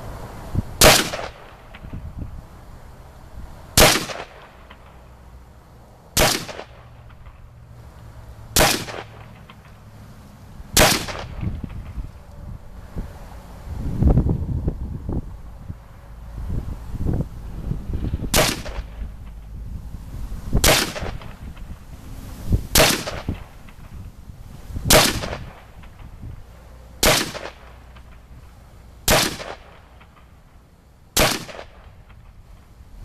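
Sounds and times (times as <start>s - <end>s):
rifle shots: 0.8s - 1.8s, 3.8s - 4.9s, 6.2s - 7.3s, 8.6s - 9.7s, 10.8s - 11.9s, 18.3s - 19.0s, 20.6s - 21.4s, 22.8s - 23.8s, 24.9s - 25.7s, 27.0s - 28.1s, 29.1s - 30.3s, 31.2s - 31.9s.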